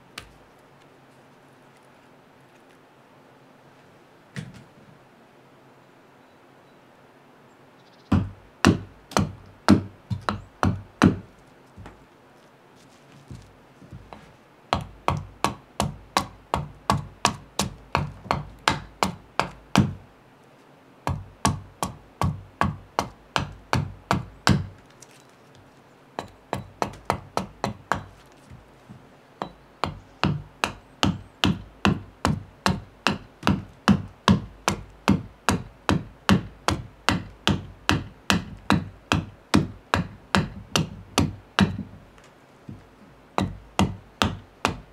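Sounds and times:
hatchet chopping wood: 0:08.1 - 0:12.0, 0:13.3 - 0:20.0, 0:21.0 - 0:24.9, 0:26.2 - 0:42.8, 0:43.4 - 0:44.9.

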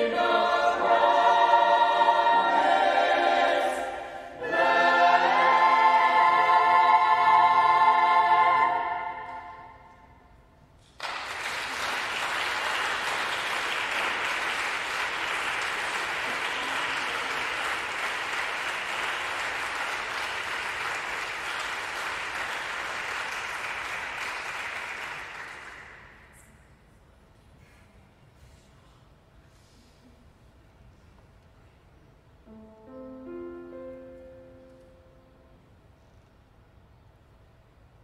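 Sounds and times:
choir holding a chord: 0:00.0 - 0:10.0
audience applauding: 0:11.0 - 0:26.2.

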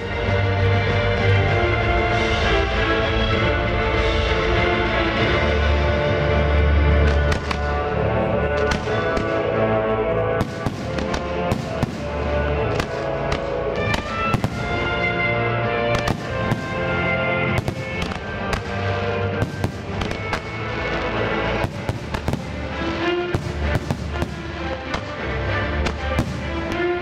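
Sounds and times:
music: 0:00.0 - 0:27.0
firework shells bursting: 0:16.0 - 0:20.8, 0:21.6 - 0:25.2.

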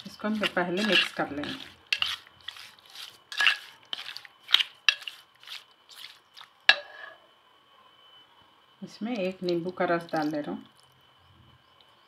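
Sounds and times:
spatula scraping metal bowl: 0:00.0 - 0:07.2.

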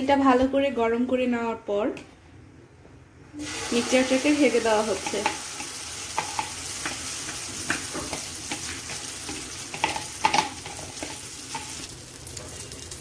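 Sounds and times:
food sizzling in oil: 0:03.4 - 0:13.0.

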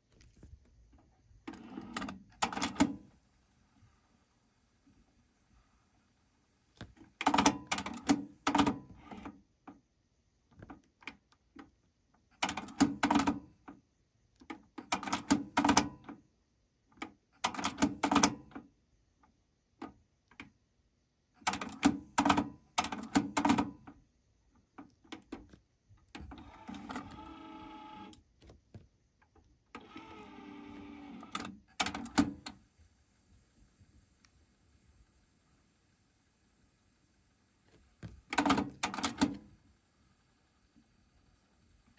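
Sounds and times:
cassette deck motor whirring: 0:26.2 - 0:28.2, 0:29.8 - 0:32.7.

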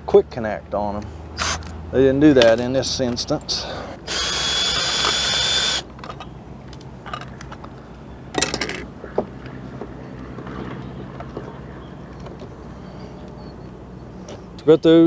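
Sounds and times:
cordless drill motor whine: 0:04.1 - 0:05.8.

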